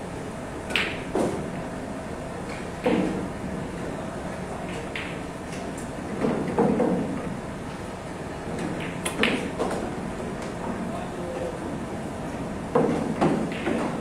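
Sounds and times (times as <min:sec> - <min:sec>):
pool balls clacking: 0:12.7 - 0:14.0.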